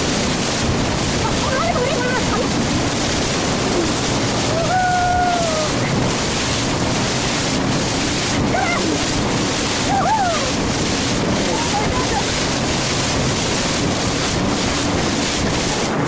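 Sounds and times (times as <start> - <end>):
water rushing past boat hull: 0.0 - 16.0
wind buffeting microphone: 0.0 - 16.0.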